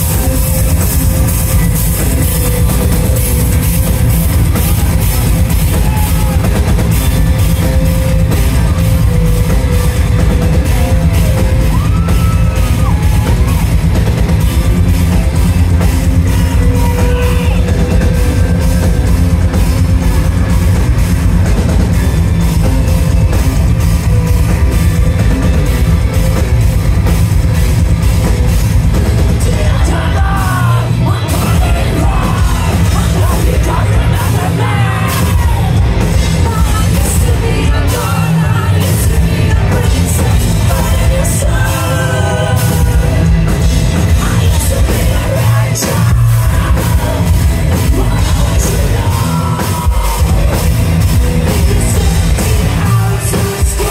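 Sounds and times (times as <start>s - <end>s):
distorted guitars and bass: 0.0s - 53.9s
driving drum beat: 0.0s - 53.9s.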